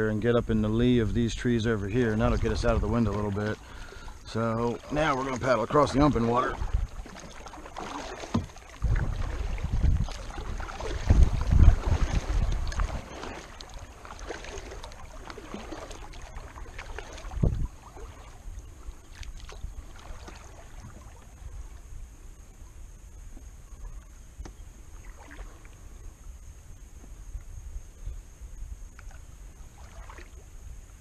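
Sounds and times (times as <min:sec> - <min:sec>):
water washing along a hull: 0:00.7 - 0:22.7, 0:29.0 - 0:30.6
paddle splashing in water: 0:01.2 - 0:26.2, 0:28.8 - 0:30.6
low thump: 0:08.2 - 0:09.2.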